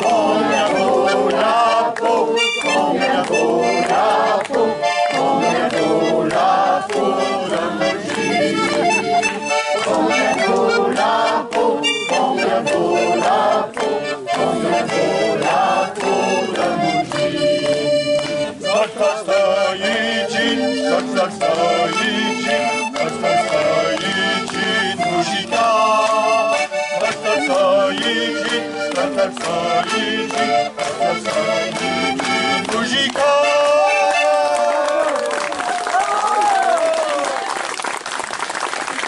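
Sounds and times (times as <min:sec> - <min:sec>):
live instrumental music: 0:07.0 - 0:34.3.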